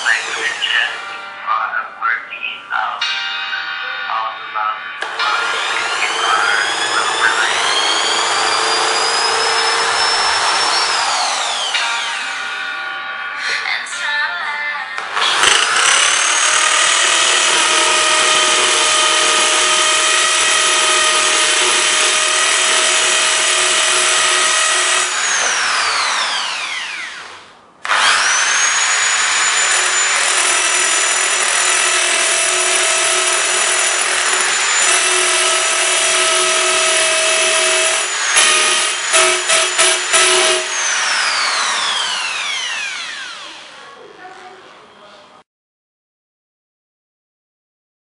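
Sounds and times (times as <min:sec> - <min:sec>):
power drill motor whining: 0:00.0 - 0:01.2, 0:05.0 - 0:12.6, 0:15.0 - 0:43.8.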